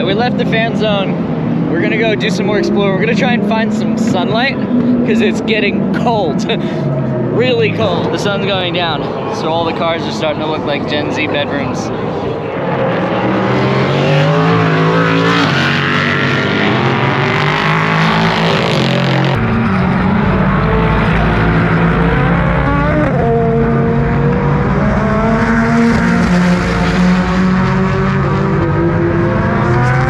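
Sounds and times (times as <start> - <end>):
race cars passing by: 0.0 - 30.0.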